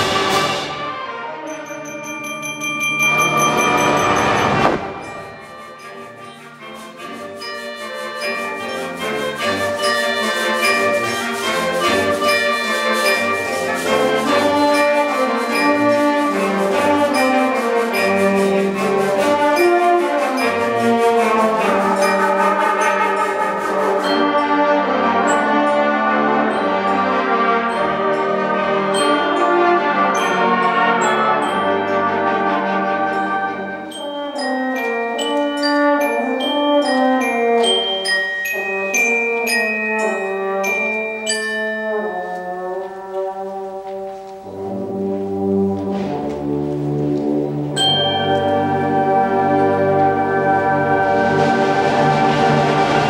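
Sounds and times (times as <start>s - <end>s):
concert band playing: 0.0s - 38.0s, 41.9s - 53.0s
percussion ticking: 1.5s - 32.2s.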